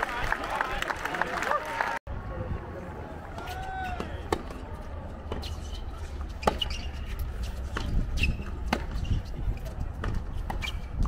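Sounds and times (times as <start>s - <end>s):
racket hitting tennis ball: 5.2s - 11.0s
shoes squeaking on court: 5.2s - 11.0s.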